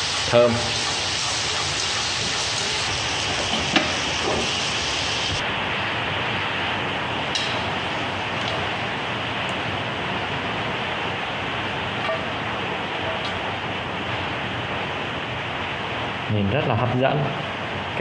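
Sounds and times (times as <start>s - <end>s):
meat sizzling in a frying pan: 0.0s - 5.4s.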